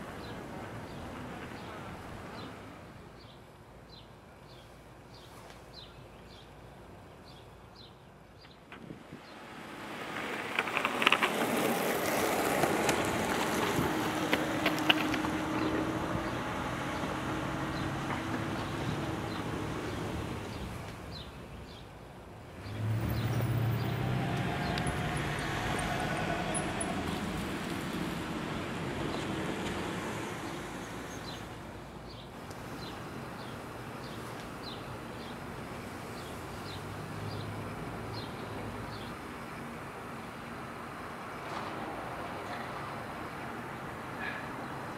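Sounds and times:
passing vehicle: 8.7 - 21.8, 22.5 - 31.9, 36.1 - 44.9
car driving past: 9.3 - 20.7, 22.6 - 31.5.

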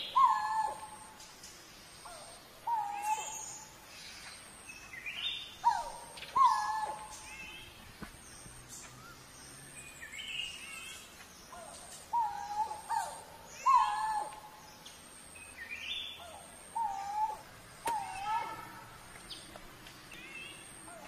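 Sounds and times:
cuckoo calling: 0.0 - 1.3, 2.0 - 3.8, 5.0 - 7.7, 10.6 - 14.6, 15.9 - 18.9.

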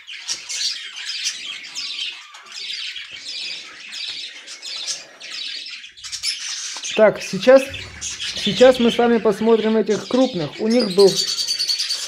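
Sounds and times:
budgerigar nestlings chattering: 5.8 - 12.0.

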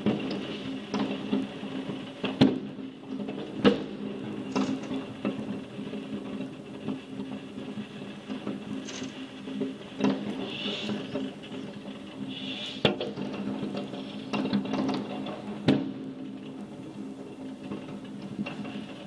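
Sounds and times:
fireworks bangs and pops: 0.0 - 19.0.

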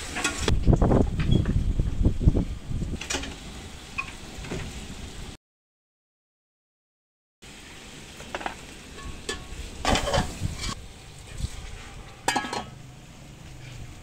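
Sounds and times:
water sizzling in hot pot: 0.0 - 0.5, 7.4 - 14.0
metal lid clanking on pot: 8.3 - 10.8, 12.2 - 12.8
metal ladle clinking on pot: 12.2 - 12.8.

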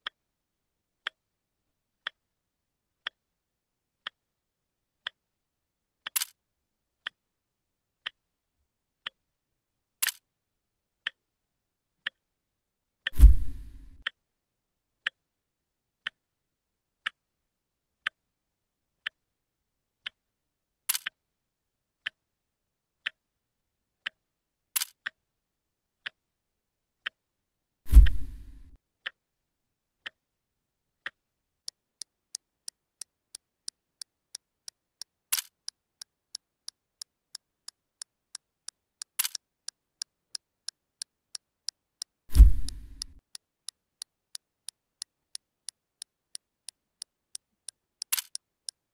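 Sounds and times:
deep thud: 13.2 - 13.9, 27.9 - 28.4, 42.3 - 42.9
clock ticking: 32.0 - 39.4, 44.0 - 48.8.

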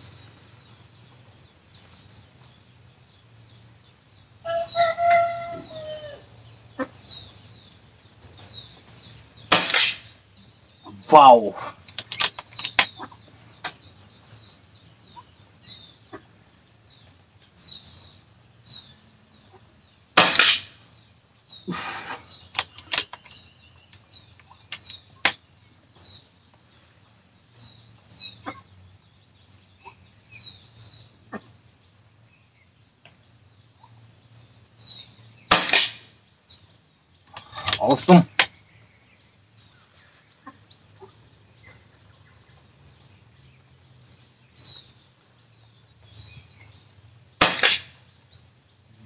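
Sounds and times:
small birds chirping: 0.0 - 49.0
steady high-pitched hiss: 0.0 - 49.0
air rifle crack: 9.5 - 10.2, 11.8 - 12.9, 20.2 - 20.8, 21.7 - 23.3, 35.5 - 36.1, 47.4 - 48.0.

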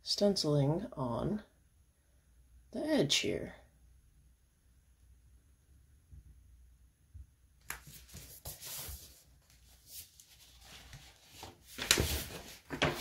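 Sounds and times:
paper rustling and sliding: 7.7 - 13.0.

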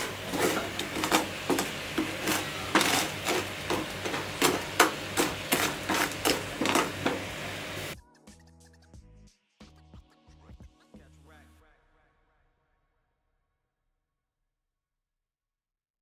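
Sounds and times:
kitchen utensil knocking: 0.0 - 7.4.

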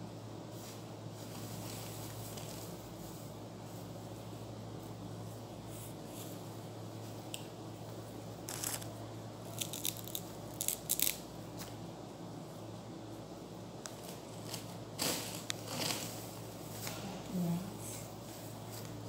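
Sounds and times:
steady low hum: 0.0 - 19.0
mint leaves rustling and snapping: 8.5 - 8.9, 9.5 - 11.8.

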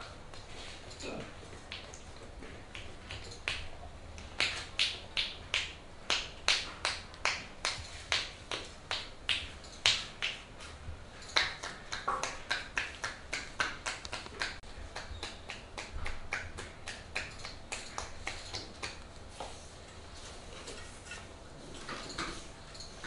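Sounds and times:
hands slapping a body: 2.7 - 10.5, 11.4 - 19.5.

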